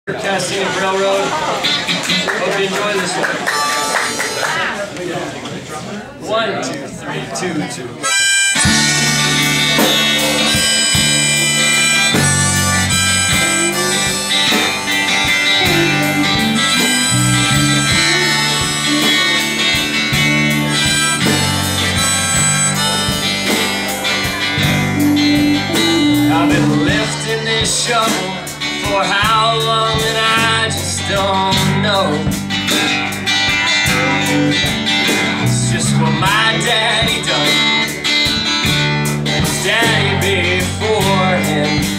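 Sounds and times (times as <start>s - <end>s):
drums: 0.1s - 4.4s, 8.1s - 41.9s
bending lead melody: 8.0s - 28.8s
strummed acoustic guitar: 8.2s - 41.9s
electric bass: 8.3s - 41.9s.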